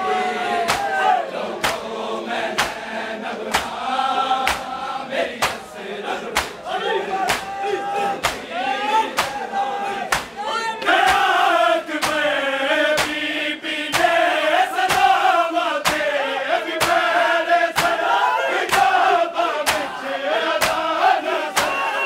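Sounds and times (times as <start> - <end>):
crowd of men chanting: 0.0 - 22.0
hands striking chests: 0.7 - 1.0, 6.4 - 6.6, 7.3 - 7.6, 8.2 - 8.4, 9.1 - 9.4, 10.1 - 10.4, 17.8 - 18.0.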